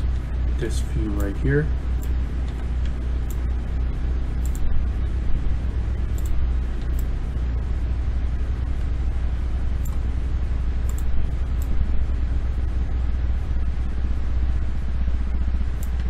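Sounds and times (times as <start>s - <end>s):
low rumbling background noise: 0.0s - 16.0s
computer mouse clicks: 4.4s - 4.7s, 6.1s - 7.1s, 10.8s - 11.8s, 15.8s - 16.0s.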